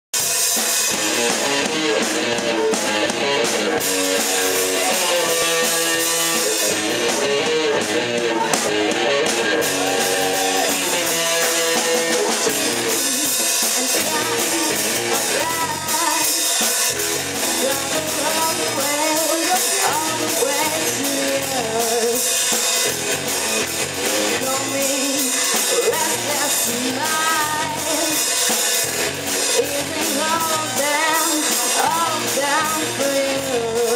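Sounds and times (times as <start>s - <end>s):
bass guitar: 0.1s - 33.9s
drum kit: 0.1s - 33.9s
electric guitar: 0.2s - 33.9s
woman singing into a microphone: 13.5s - 16.7s, 17.5s - 22.3s, 24.3s - 28.4s, 29.5s - 33.9s.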